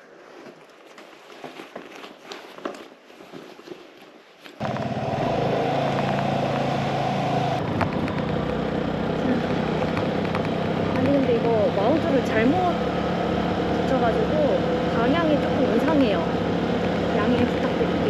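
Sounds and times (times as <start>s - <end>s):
vehicle engine running: 4.6s - 18.0s.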